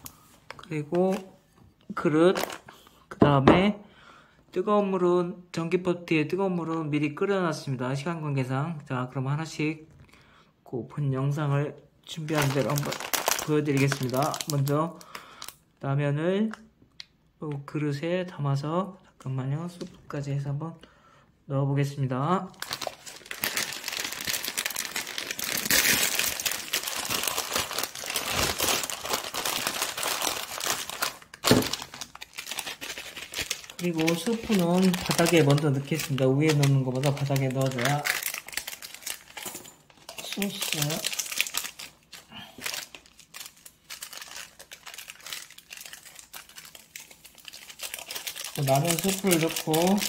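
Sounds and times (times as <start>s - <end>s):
plastic packet crinkling: 0.0s - 1.4s, 2.2s - 2.8s, 12.1s - 15.6s, 22.5s - 50.0s.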